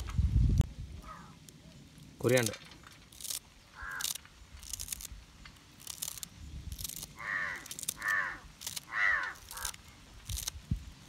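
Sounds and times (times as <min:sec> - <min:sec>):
crow cawing: 0:01.0 - 0:01.4, 0:03.7 - 0:04.2, 0:07.2 - 0:09.8.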